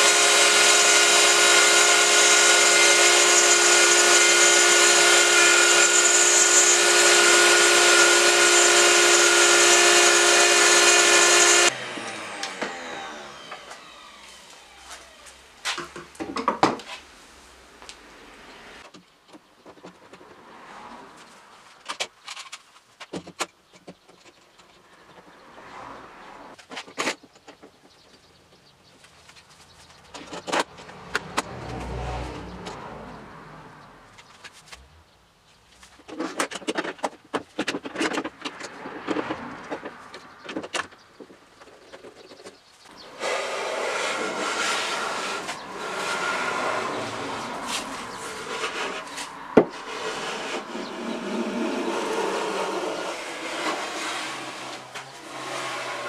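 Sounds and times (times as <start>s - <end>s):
power tool running on wood: 0.0s - 16.1s, 43.0s - 56.0s.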